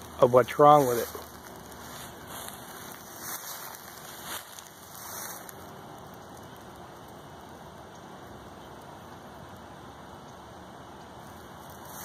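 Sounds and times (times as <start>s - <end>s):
soft rustles: 0.0s - 5.7s
outdoor background hiss: 0.0s - 12.0s.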